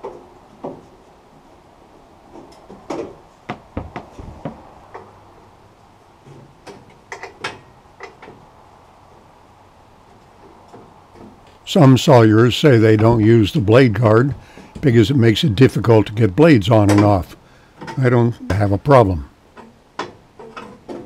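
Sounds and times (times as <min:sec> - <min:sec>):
metal wheel cover clicks and clunks: 0:06.3 - 0:08.4.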